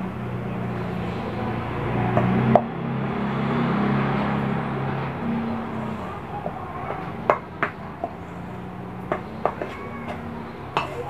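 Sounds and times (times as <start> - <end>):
utensil clinking on metal bowl: 9.1 - 11.0.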